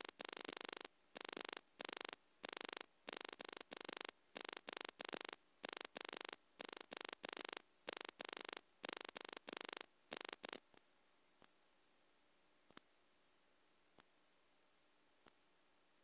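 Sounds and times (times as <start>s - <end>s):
faint ticks: 0.0s - 11.6s, 12.7s - 12.9s.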